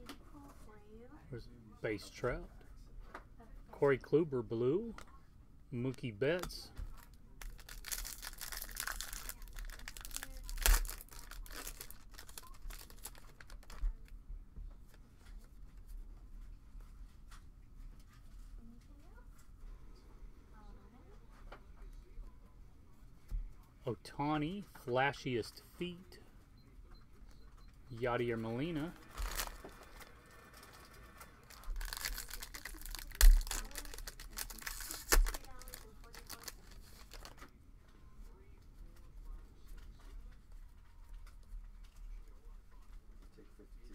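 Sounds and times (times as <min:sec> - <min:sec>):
foil wrapper crinkling and tearing: 0:07.4 - 0:14.0, 0:28.6 - 0:37.4.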